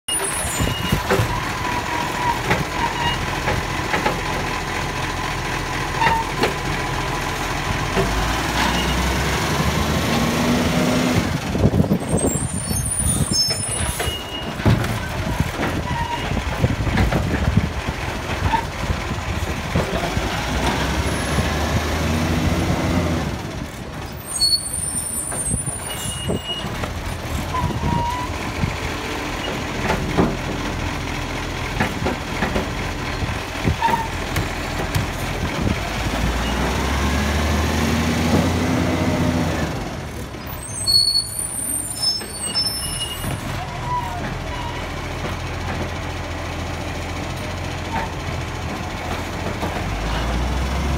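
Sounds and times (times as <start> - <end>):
diesel engine revving: 0.1 - 50.9
clanks and knocks of bins: 0.6 - 1.4, 13.5 - 17.7, 29.5 - 30.7, 31.7 - 32.9, 33.6 - 35.8, 45.2 - 46.1.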